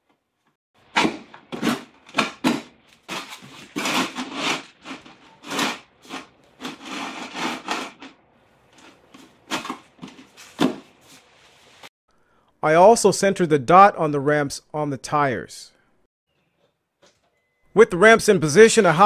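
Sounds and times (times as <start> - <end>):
plastic ramps scraping on concrete: 3.1 - 8.2.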